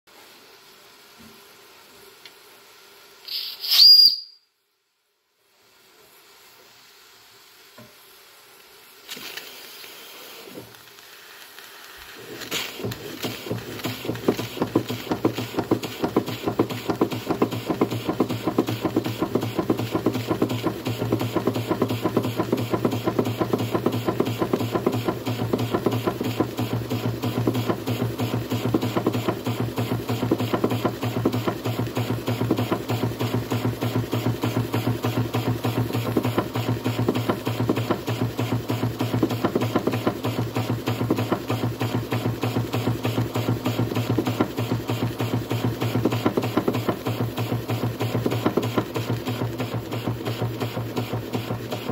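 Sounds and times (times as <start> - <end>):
steam engine chuffing: 12.2 - 51.9.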